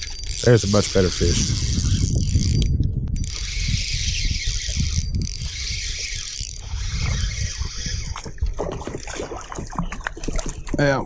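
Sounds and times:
fishing reel whirring: 0.0s - 8.5s
wind rumbling on microphone: 0.0s - 11.0s.

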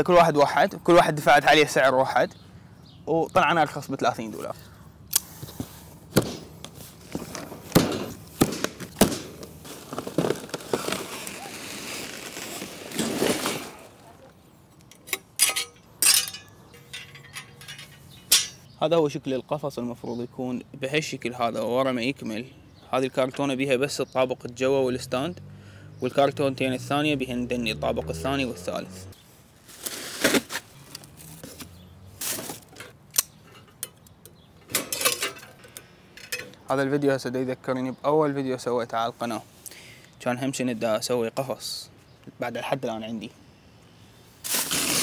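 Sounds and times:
plastic wrapping rustling: 6.8s - 14.2s
cardboard box rustling and scraping: 9.6s - 14.0s, 29.6s - 32.7s
metal wire panels clanking: 14.9s - 18.7s, 34.6s - 36.6s.

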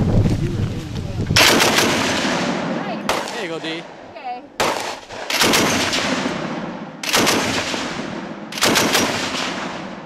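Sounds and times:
machine gun firing bursts: 1.4s - 3.6s, 4.6s - 9.9s
gunshot echo: 1.4s - 4.0s, 4.6s - 10.0s.

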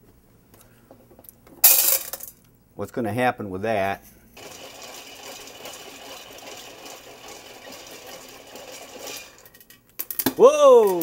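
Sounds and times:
popcorn kernels rattling in pot: 4.4s - 11.0s.

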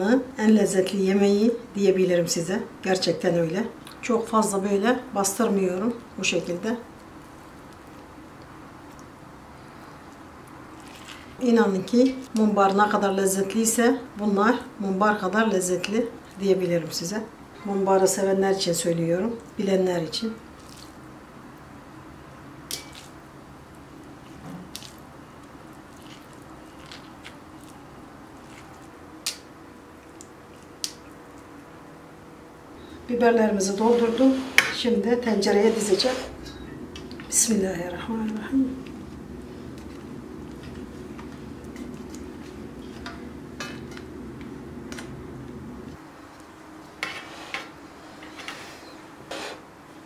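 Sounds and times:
low background hum: 0.0s - 50.0s
wet filling squishing: 20.6s - 21.0s, 24.0s - 31.5s.

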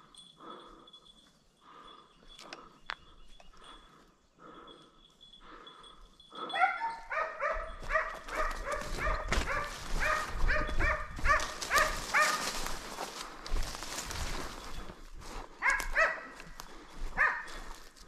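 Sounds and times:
hound barking: 6.4s - 12.9s, 15.6s - 17.8s.

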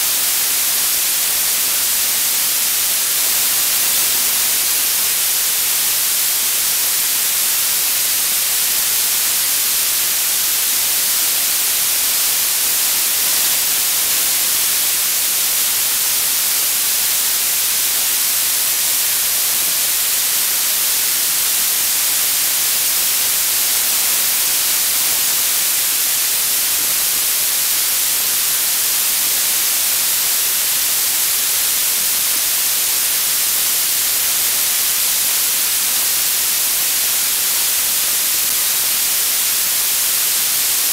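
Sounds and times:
static hiss: 0.0s - 40.9s.

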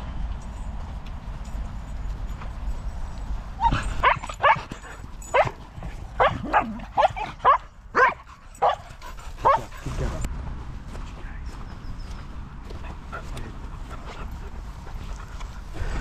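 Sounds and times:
dog yipping and barking: 3.6s - 5.6s, 6.2s - 8.8s, 9.4s - 9.7s.

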